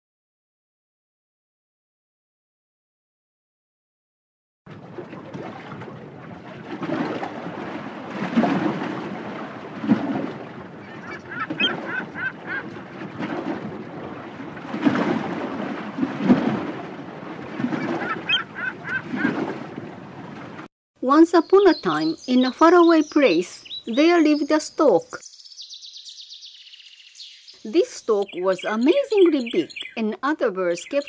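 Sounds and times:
high honking bird calls: 10.6 - 12.8, 17.7 - 19.4.

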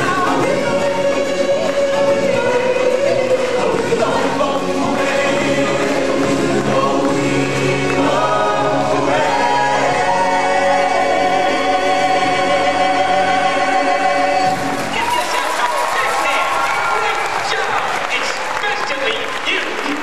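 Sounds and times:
choir singing over music: 0.0 - 15.7.

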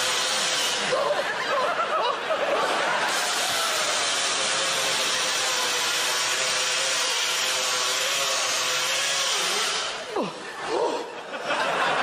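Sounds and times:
electric drill motor whine: 3.1 - 10.1.

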